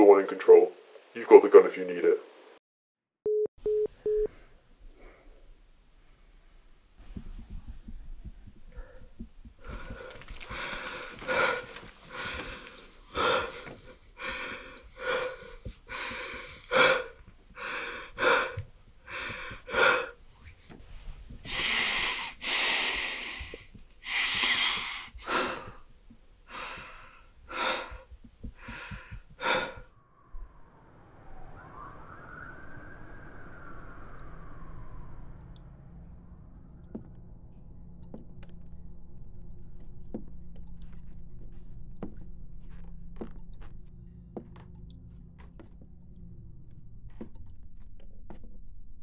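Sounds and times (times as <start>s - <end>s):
man breathing hard: 8.6s - 29.9s.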